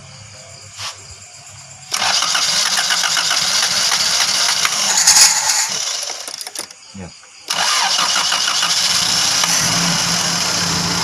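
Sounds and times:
car engine cranking on starter: 0:01.9 - 0:06.8, 0:07.5 - 0:11.0.

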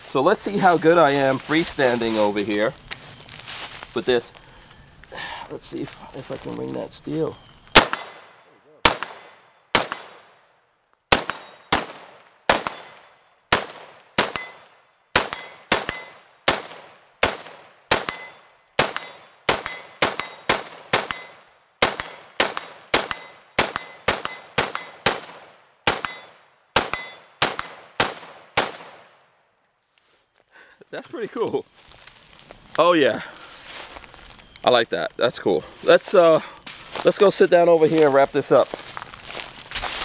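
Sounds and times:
rifle shots with echo: 0:07.7 - 0:10.4, 0:11.1 - 0:29.2.

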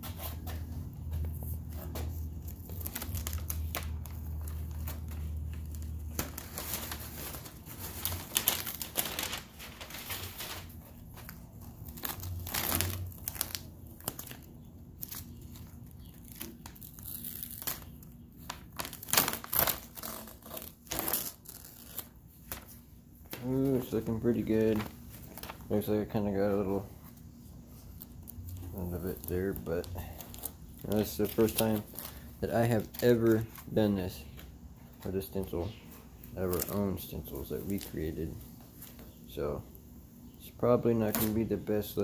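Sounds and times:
tape tearing: 0:00.0 - 0:22.8, 0:41.0 - 0:41.5
paper crinkling and rustling: 0:00.0 - 0:39.2.

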